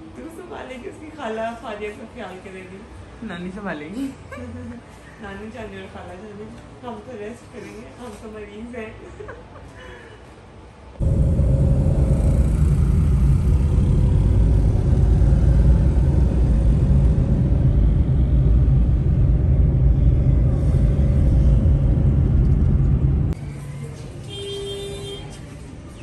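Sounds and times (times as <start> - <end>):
car engine rumble and road noise: 14.2 - 23.4.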